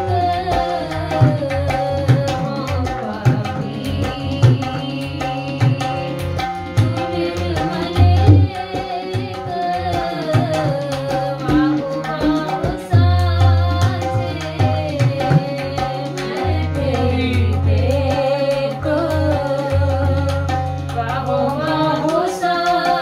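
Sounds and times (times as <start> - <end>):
deep tabla bass drum booms: 0.0 - 10.8
harmonium: 0.0 - 23.0
tabla playing: 0.0 - 23.0
woman singing: 0.0 - 23.0.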